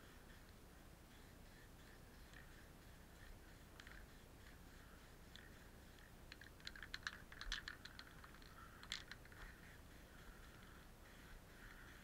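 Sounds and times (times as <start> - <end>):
light clicks and ticks: 3.7 - 4.6, 5.3 - 9.7.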